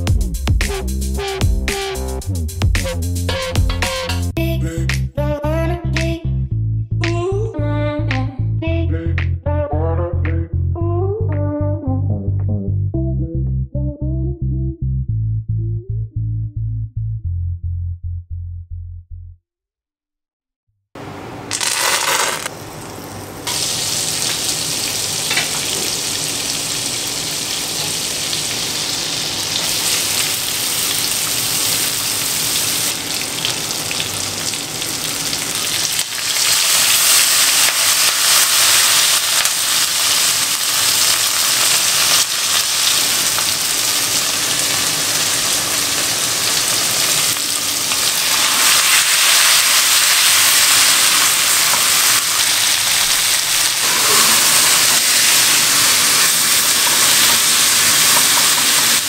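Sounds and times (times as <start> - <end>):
oil and butter sizzling in a wok: 21.5 - 59.0.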